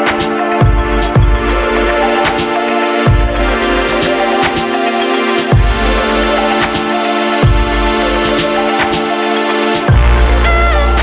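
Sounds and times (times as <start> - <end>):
electronic music with synth chords: 0.0 - 11.0
heavy bass hit: 9.9 - 11.0.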